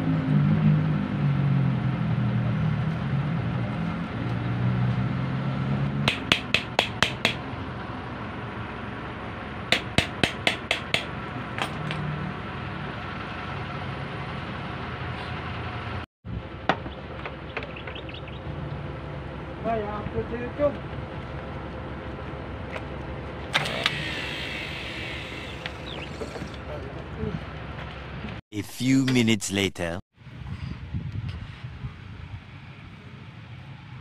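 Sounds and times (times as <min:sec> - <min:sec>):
hammer tapping on metal: 0:06.1 - 0:07.4, 0:09.7 - 0:11.1.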